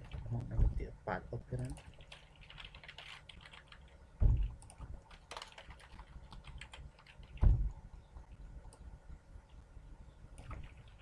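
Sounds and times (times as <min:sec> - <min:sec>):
dull deep thumps: 0:00.4 - 0:00.9, 0:04.2 - 0:04.6, 0:07.4 - 0:07.8
computer keyboard typing: 0:01.6 - 0:07.5, 0:10.4 - 0:11.0.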